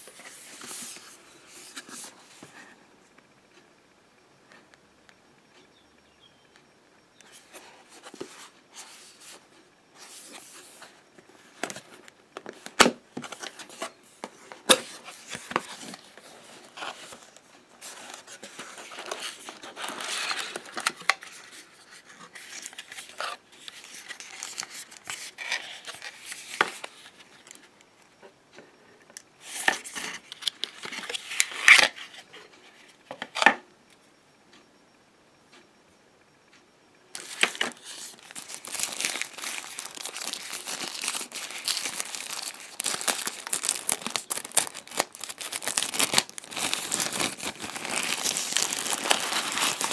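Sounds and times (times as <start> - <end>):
wrapping crinkling: 15.0 - 21.6, 37.1 - 49.9
cardboard scraping and rustling: 37.2 - 49.9.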